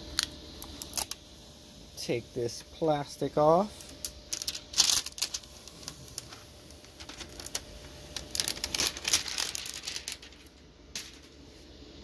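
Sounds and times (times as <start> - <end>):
plastic film crinkling: 0.2 - 1.2, 3.8 - 11.5.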